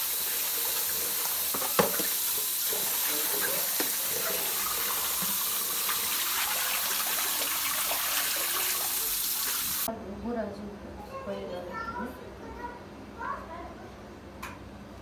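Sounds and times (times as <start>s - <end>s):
tap water running into bowl: 0.0s - 9.9s
water splashing as herbs rinsed: 0.0s - 9.9s.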